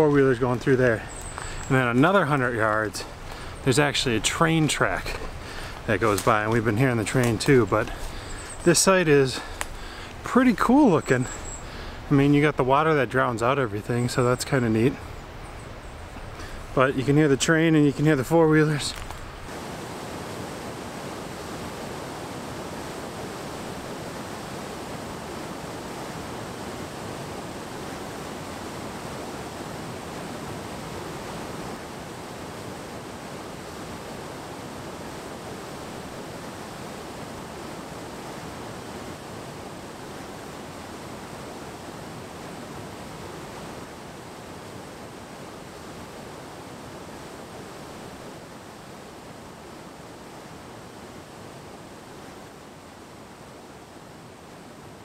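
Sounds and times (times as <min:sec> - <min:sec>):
waterfall rushing: 0:16.4 - 0:53.4.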